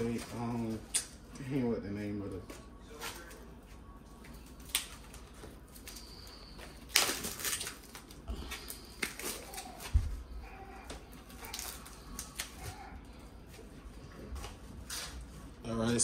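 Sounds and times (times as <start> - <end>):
plastic packaging rustling: 0.0 - 0.9, 4.3 - 15.5.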